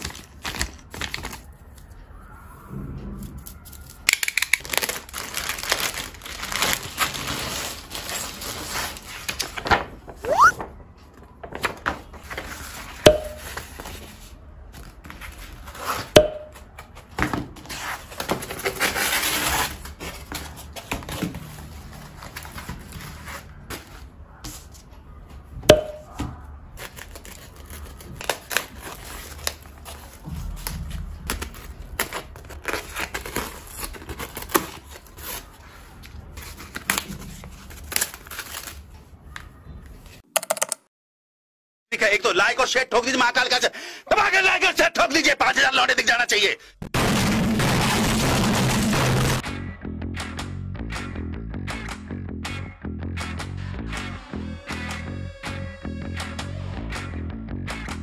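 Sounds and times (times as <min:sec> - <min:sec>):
plastic packaging crinkling: 0:00.0 - 0:01.6, 0:04.0 - 0:10.2, 0:26.8 - 0:30.2, 0:31.4 - 0:39.0.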